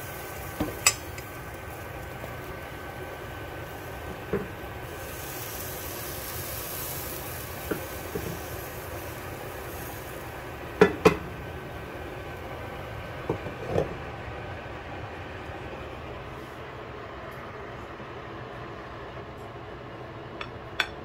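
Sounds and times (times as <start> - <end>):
batter sizzling in a pan: 0.0 - 15.0.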